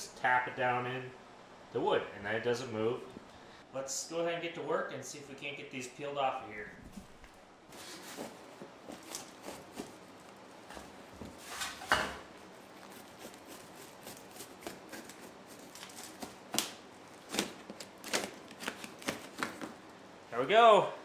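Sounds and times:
knife scraping wood: 0:12.7 - 0:16.3.

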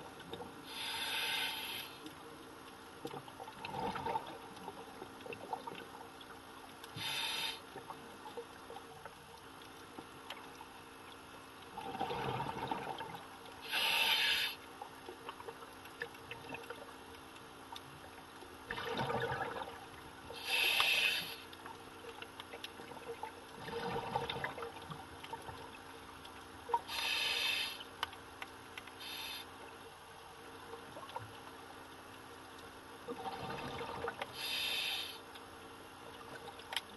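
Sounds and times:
regulator hiss on inhale: 0:00.6 - 0:02.2, 0:06.9 - 0:07.8, 0:13.6 - 0:14.7, 0:20.3 - 0:21.5, 0:26.9 - 0:27.9, 0:29.0 - 0:29.6, 0:34.3 - 0:35.3
exhaled bubbles underwater: 0:03.1 - 0:06.0, 0:11.7 - 0:13.3, 0:18.6 - 0:20.8, 0:22.8 - 0:25.8, 0:33.0 - 0:34.4.

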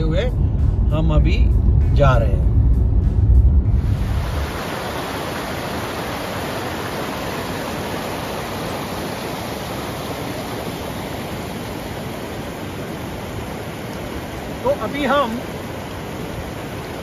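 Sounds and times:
stream rushing over rocks: 0:03.7 - 0:17.0.

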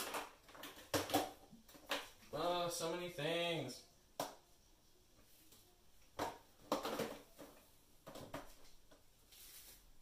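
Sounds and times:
containers clattering: 0:06.2 - 0:08.5.

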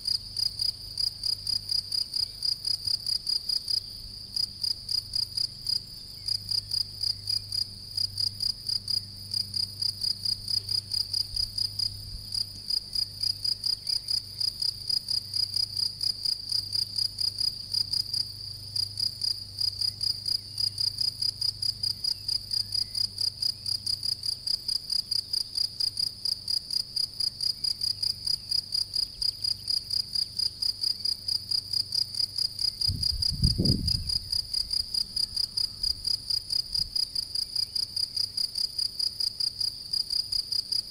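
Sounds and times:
cricket chirping: 0:00.0 - 0:40.9.

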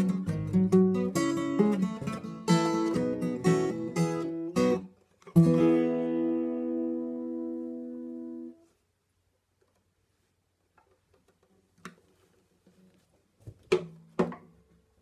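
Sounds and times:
acoustic guitar chord ringing: 0:00.0 - 0:08.6.

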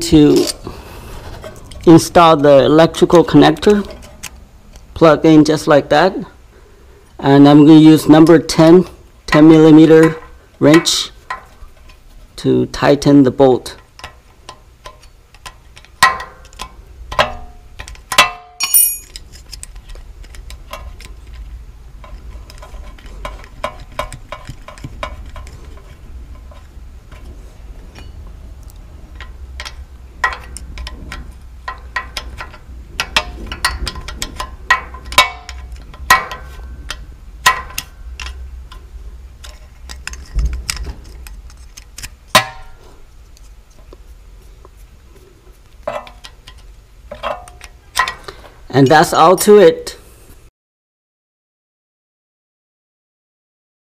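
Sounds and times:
low steady hum: 0:00.0 - 0:50.5
wrench clinking on bolt: 0:16.0 - 0:19.2.

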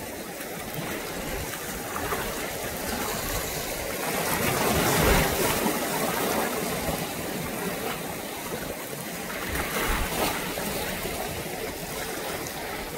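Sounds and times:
sea water lapping: 0:00.0 - 0:12.9.

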